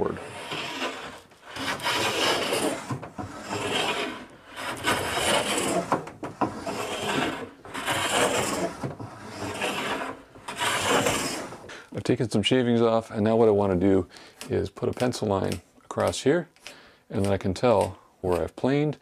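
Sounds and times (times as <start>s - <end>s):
hand plane shaving wood: 0.0s - 11.8s.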